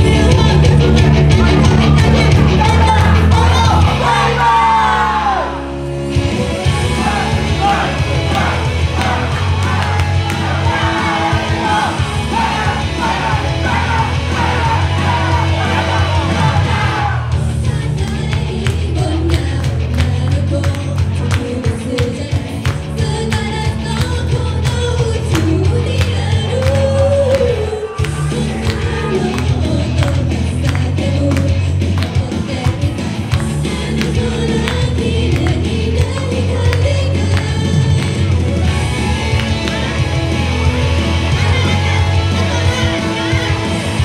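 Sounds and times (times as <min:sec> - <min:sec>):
live pop music with singing: 0:00.0 - 0:44.0.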